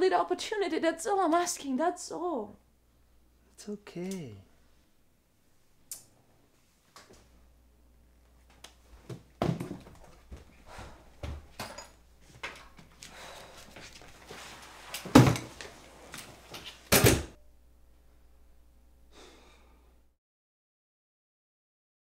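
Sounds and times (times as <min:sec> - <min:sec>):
faint room hum: 0:00.0 - 0:20.2
footsteps: 0:08.3 - 0:16.8
door banging shut: 0:16.9 - 0:17.4.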